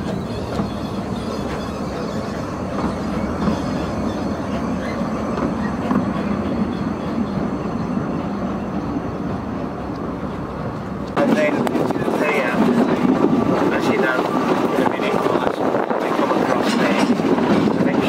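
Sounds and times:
wheel squeals: 0:00.0 - 0:08.9
train wheels rumbling and clicking: 0:00.0 - 0:18.0.

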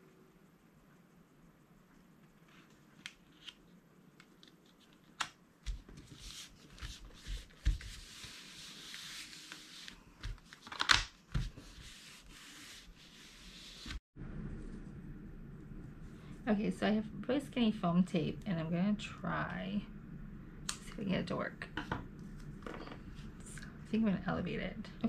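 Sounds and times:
paper rustling and sliding: 0:05.7 - 0:14.0.

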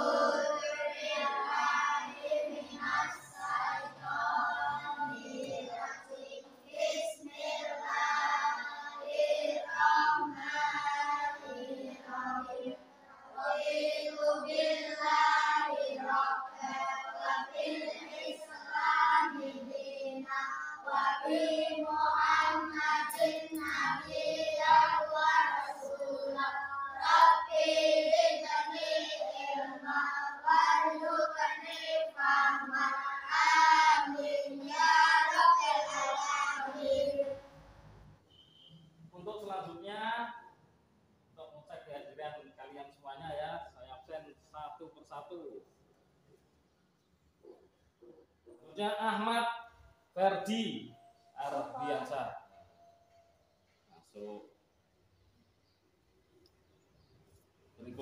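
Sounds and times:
children chanting a prayer: 0:00.0 - 0:37.8, 0:51.4 - 0:53.0.

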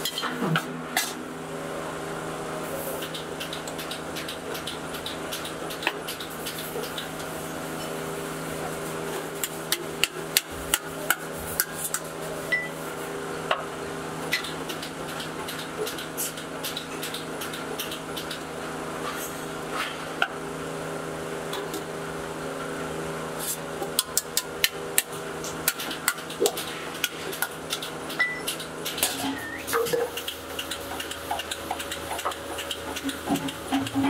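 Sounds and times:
steady many-toned hum: 0:00.0 - 0:34.0.

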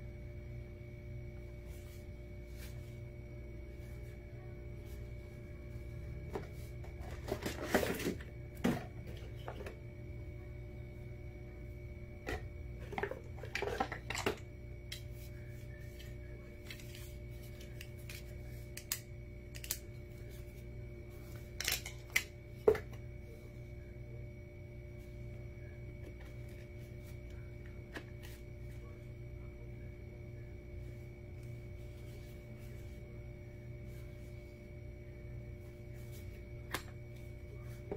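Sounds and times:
steady hum: 0:00.0 - 0:37.9.

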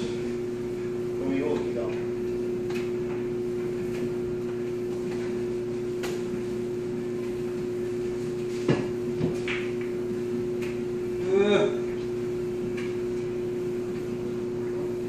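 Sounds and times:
steady low hum: 0:00.0 - 0:15.0
pool balls clicking: 0:08.8 - 0:10.9.

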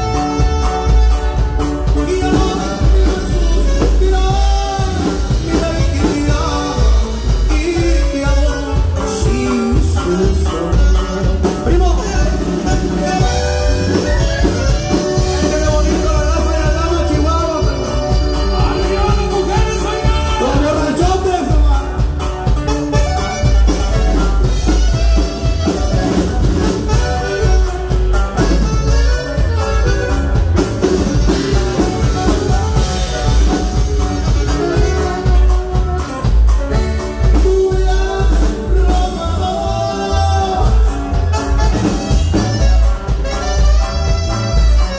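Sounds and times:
alto saxophone: 0:00.0 - 0:07.4, 0:10.6 - 0:20.6, 0:22.2 - 0:38.2, 0:38.8 - 0:44.9
man singing: 0:00.0 - 0:29.6, 0:30.8 - 0:44.0
bass and guitar: 0:00.0 - 0:44.9
button accordion: 0:00.0 - 0:44.9
steady drum beat: 0:00.0 - 0:44.9.

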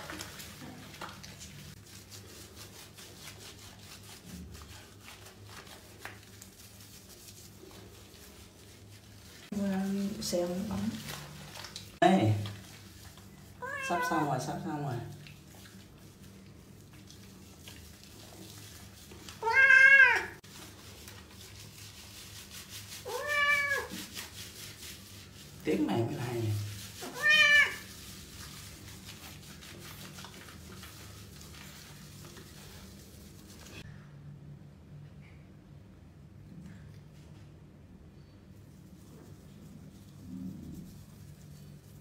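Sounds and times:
hands rubbing wet fur: 0:00.0 - 0:33.9, 0:38.6 - 0:42.0
cat meowing: 0:13.6 - 0:14.2, 0:19.4 - 0:20.4, 0:23.0 - 0:24.0, 0:27.0 - 0:27.8.

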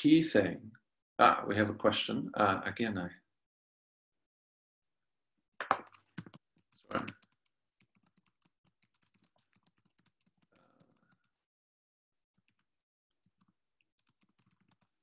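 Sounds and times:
typing on computer keyboard: 0:05.6 - 0:11.4, 0:12.4 - 0:15.0.

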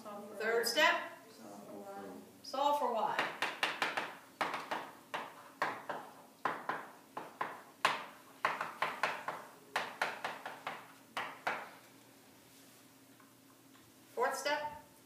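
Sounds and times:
chalk tapping on chalkboard: 0:03.2 - 0:11.8.

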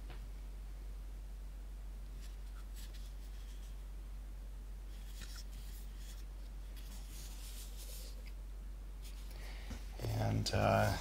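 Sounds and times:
low steady hum: 0:00.0 - 0:11.0
hands rubbing wooden radio: 0:05.0 - 0:08.3.

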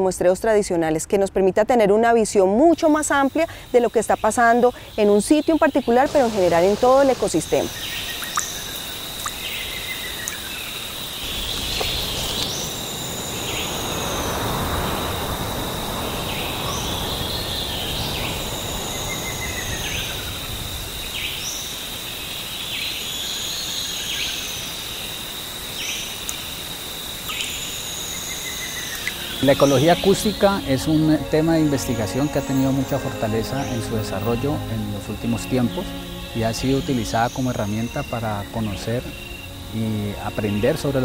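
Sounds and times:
insect high trill: 0:02.6 - 0:41.0
lower falling bird call: 0:05.6 - 0:21.8.

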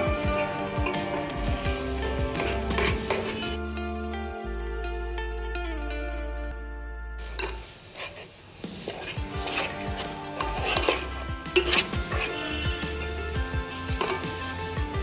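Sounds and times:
guitar background music: 0:00.0 - 0:07.9, 0:08.6 - 0:15.0
ladle scraping a metal pot: 0:00.4 - 0:01.4, 0:02.1 - 0:03.6, 0:07.2 - 0:14.5.

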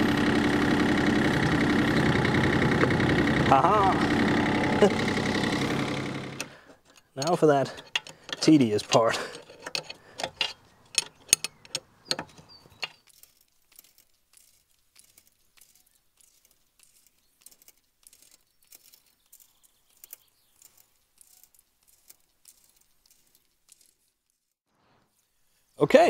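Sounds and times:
hand tools clinking on steel: 0:06.4 - 0:24.0.

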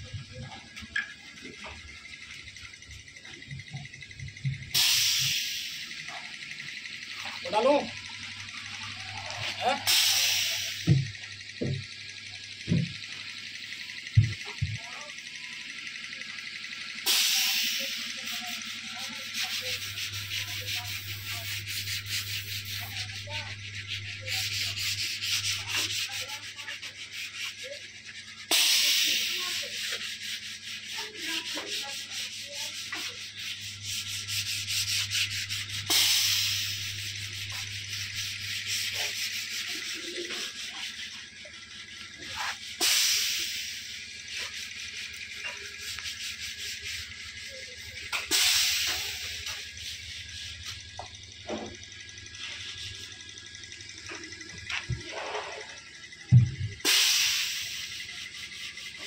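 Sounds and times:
low steady hum: 0:00.0 - 0:59.0
loud rushing hiss: 0:04.8 - 0:06.0, 0:09.8 - 0:10.9, 0:28.4 - 0:41.0, 0:42.3 - 0:45.1, 0:48.1 - 0:50.8, 0:56.8 - 0:58.5.

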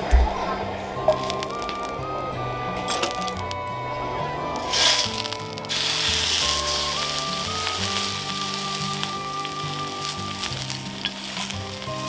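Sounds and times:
steak sizzling in a frying pan: 0:04.6 - 0:12.0.

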